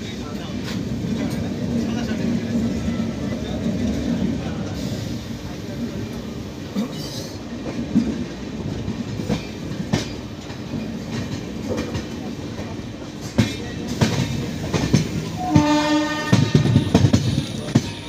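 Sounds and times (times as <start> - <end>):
train rumble: 0.0 - 18.0
train wheels clacking over joints: 6.8 - 18.0
train horn: 15.4 - 17.0.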